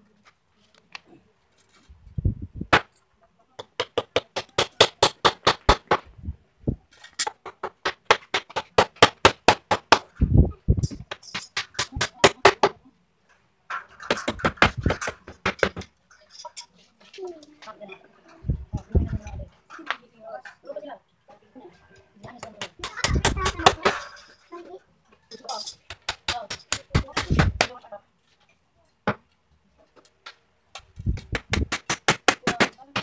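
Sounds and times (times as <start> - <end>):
rapid hammer blows on wood: 3.6 - 6.2, 7.3 - 10.2, 14.1 - 15.9, 22.4 - 24.0, 25.9 - 27.8, 30.8 - 33.0.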